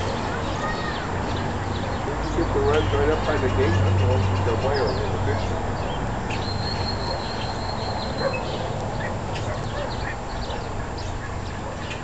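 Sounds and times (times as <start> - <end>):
birds chirping: 0.0 - 12.0
steady outdoor hum: 0.0 - 12.0
thin steady whistle: 6.5 - 8.4.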